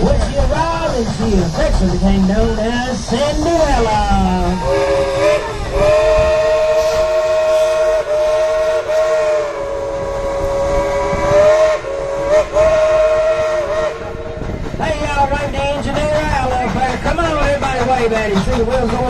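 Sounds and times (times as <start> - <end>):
steam locomotive whistle: 4.5 - 14.6.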